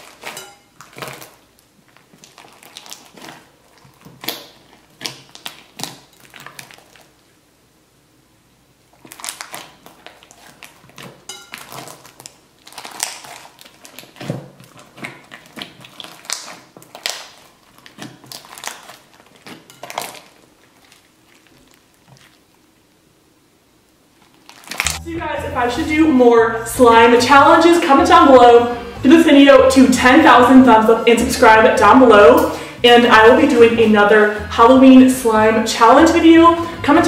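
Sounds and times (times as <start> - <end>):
slime squishing: 0.0 - 7.4, 8.8 - 22.9, 24.0 - 25.0.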